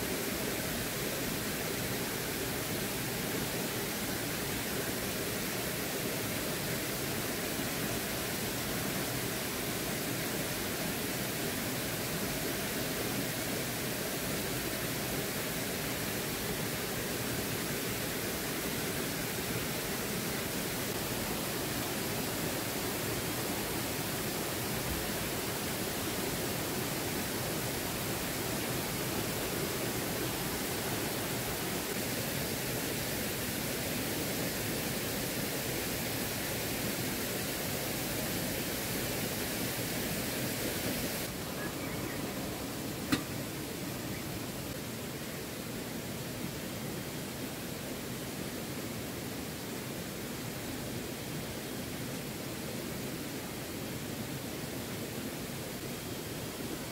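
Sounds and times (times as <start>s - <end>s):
flowing water rushing: 0.0s - 56.9s.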